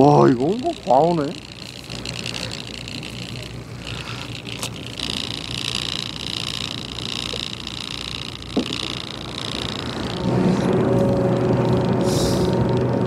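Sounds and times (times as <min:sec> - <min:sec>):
boat engine hum and whine: 0:00.0 - 0:13.0.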